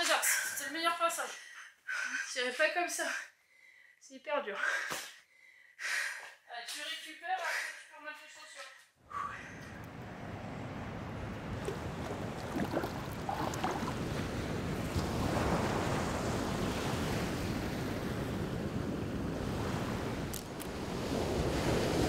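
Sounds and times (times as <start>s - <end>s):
ocean waves breaking on shore: 9.5s - 22.0s.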